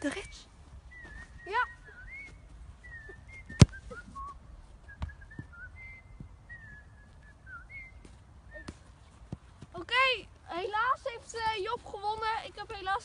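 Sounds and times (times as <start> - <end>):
faint high whistling tones: 0.1 - 8.9
football kicked hard: 3.5 - 3.8.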